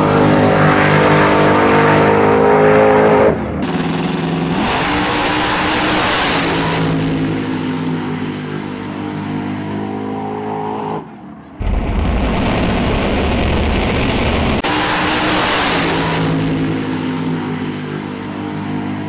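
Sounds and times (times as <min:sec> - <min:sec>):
truck engine at full throttle: 0:00.0 - 0:19.0
rough engine blast with low rumble: 0:03.4 - 0:09.2, 0:11.1 - 0:18.6.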